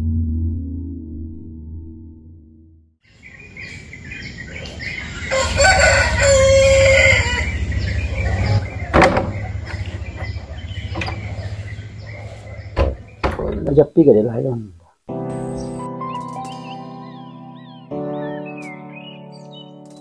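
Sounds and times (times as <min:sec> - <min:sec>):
small birds chirping: 0:03.1 - 0:20.0
rooster crowing: 0:04.8 - 0:13.1
sharp knock: 0:08.9 - 0:10.3.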